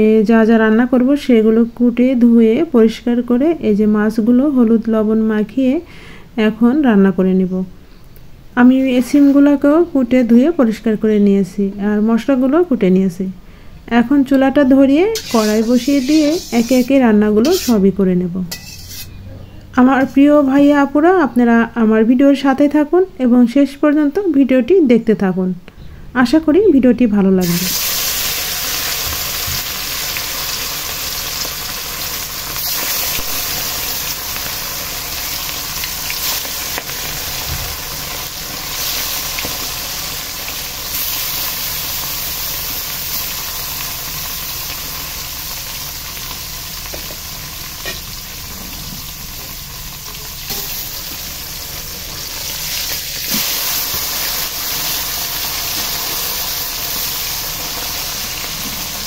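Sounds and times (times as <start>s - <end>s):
fish frying in hot oil: 15.2s - 17.7s, 27.5s - 59.0s.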